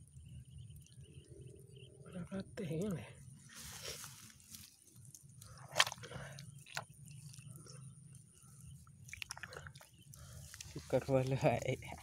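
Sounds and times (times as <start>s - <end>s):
small crackles: 2.8s - 12.0s
wet mud squelching: 3.6s - 7.8s, 8.9s - 12.0s.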